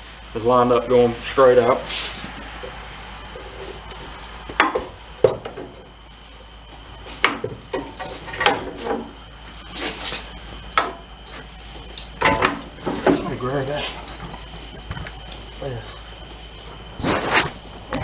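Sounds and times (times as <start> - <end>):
metal clinks and knocks: 4.6 - 5.9, 7.2 - 9.2, 10.8 - 15.2.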